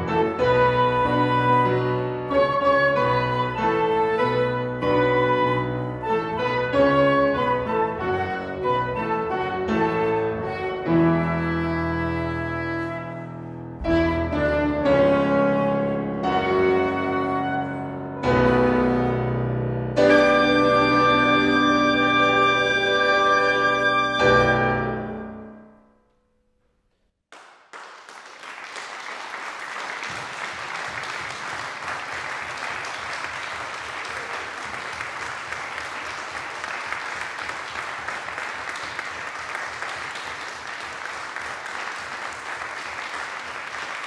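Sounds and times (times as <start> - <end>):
flute clarinet and piano chord: 0.0 - 25.8
audience applause: 27.3 - 44.0.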